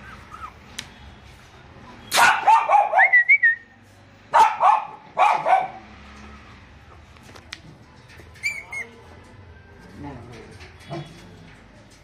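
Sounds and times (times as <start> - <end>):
puppy whining: 0.0 - 0.6.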